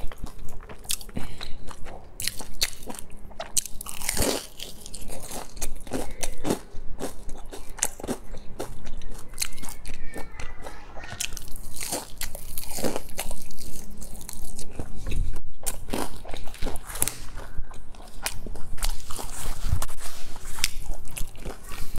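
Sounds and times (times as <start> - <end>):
crunchy chewing: 0.0 - 21.9.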